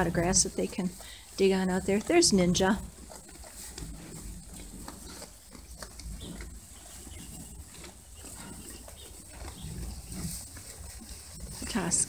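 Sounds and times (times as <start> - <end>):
sheep chewing hay: 0.0 - 12.0.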